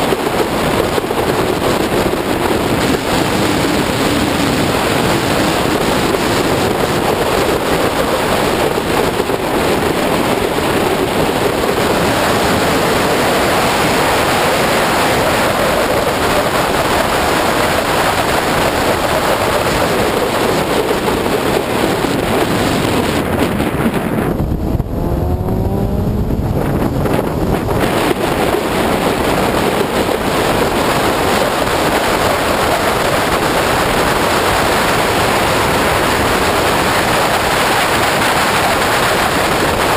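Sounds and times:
wind rush on microphone: 0.0s - 39.9s
tyre noise: 18.5s - 37.2s
car engine: 18.5s - 37.4s.

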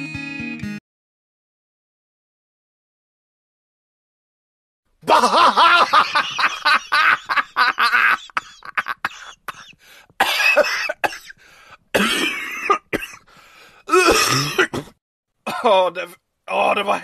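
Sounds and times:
woman coughing: 8.4s - 13.2s, 13.9s - 15.0s.

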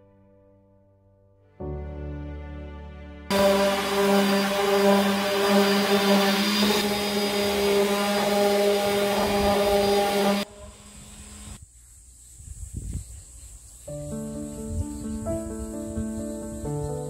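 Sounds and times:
palm sander grinding wood: 3.3s - 10.8s.

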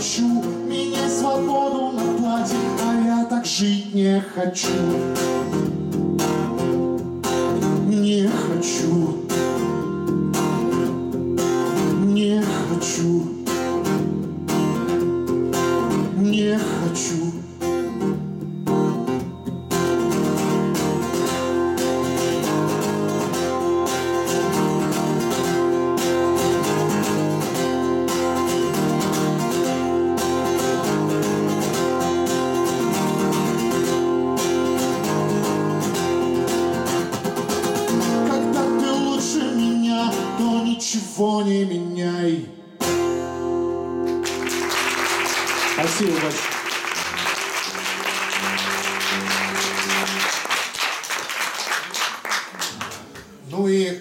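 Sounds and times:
man singing: 0.0s - 5.4s, 7.5s - 9.5s, 11.8s - 13.8s, 15.9s - 17.6s, 38.0s - 42.8s
strummed acoustic guitar: 0.0s - 50.5s.

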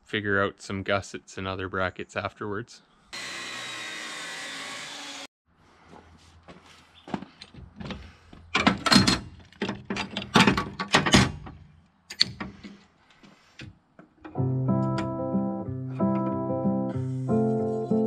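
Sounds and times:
chop saw cutting steel: 3.1s - 5.3s.

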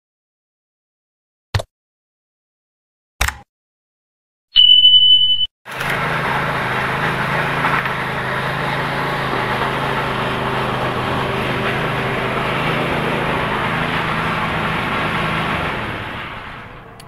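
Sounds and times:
steady motor hum: 5.7s - 17.0s.

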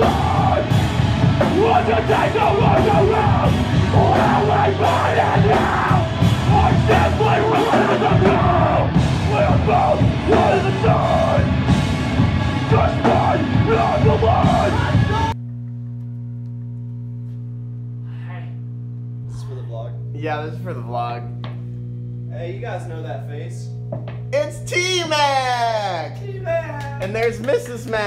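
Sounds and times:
heavy rock band playing: 0.0s - 15.4s
pounding drums: 0.0s - 15.4s
electrical hum: 0.0s - 28.0s.

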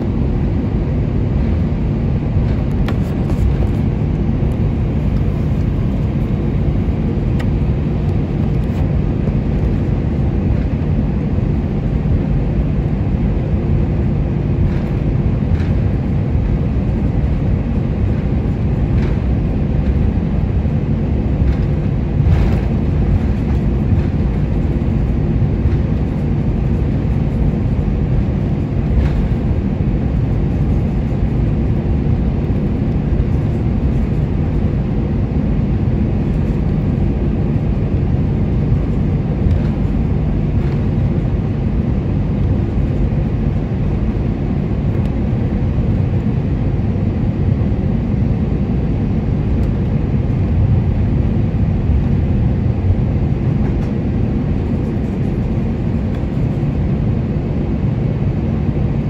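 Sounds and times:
airliner rolling rumble: 0.0s - 59.0s
jet engines idling in cabin: 0.0s - 59.0s.

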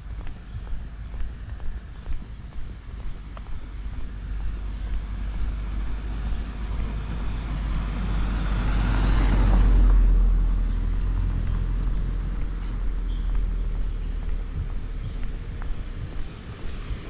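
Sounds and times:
steady low rumble: 0.0s - 17.0s
vehicle passing by: 4.0s - 17.0s.

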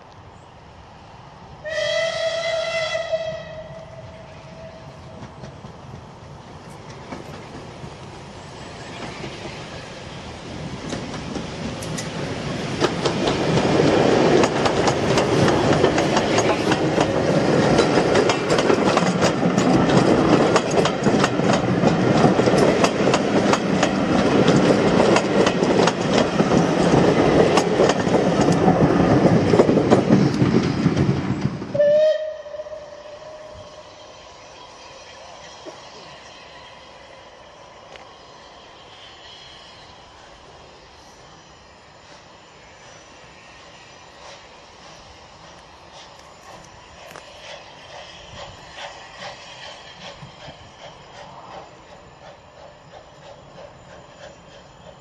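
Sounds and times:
steam train passing: 0.0s - 55.0s
steam locomotive whistle: 1.6s - 5.2s, 31.7s - 34.1s.

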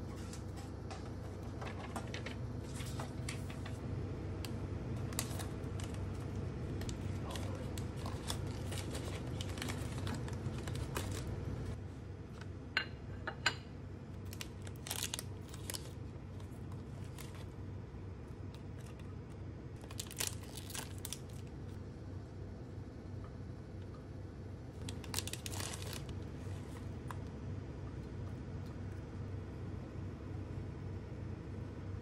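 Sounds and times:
low steady hum: 0.0s - 32.0s
plastic wrappers crinkling and tearing: 5.0s - 11.8s, 14.2s - 17.5s, 19.8s - 21.6s, 24.8s - 27.2s.

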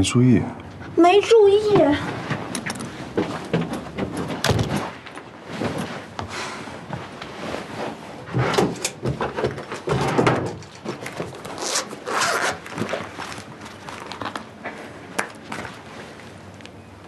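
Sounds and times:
clothing rustling: 1.9s - 8.4s
zip rasp: 11.5s - 12.6s.

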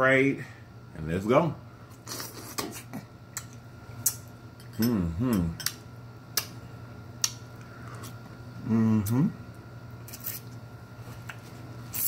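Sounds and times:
person humming: 4.8s - 5.6s, 8.6s - 9.4s
eating clicks and smacks: 7.2s - 7.4s.

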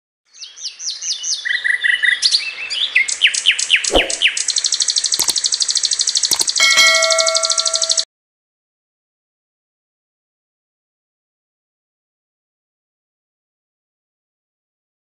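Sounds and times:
bird chirping and trilling: 0.3s - 8.0s
sharp clicks: 3.9s - 6.7s.

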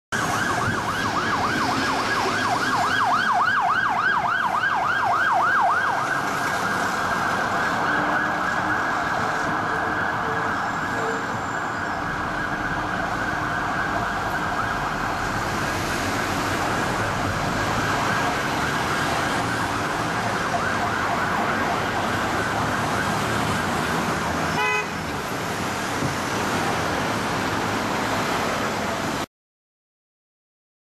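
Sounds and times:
police siren yelping and wailing: 0.1s - 24.6s
city traffic noise: 0.1s - 29.3s.

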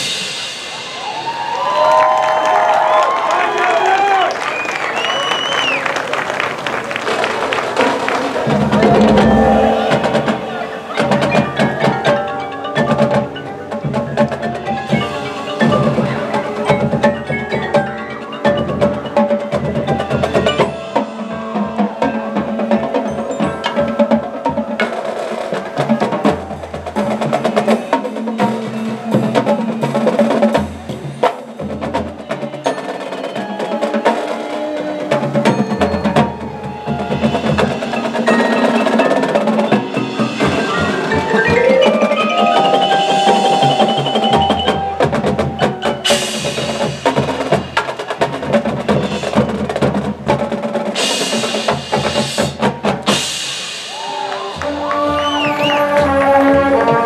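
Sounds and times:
marching drumline strikes and rolls: 6.1s - 57.0s
mallet percussion instruments: 8.3s - 57.0s
deep bass notes: 8.4s - 12.0s.

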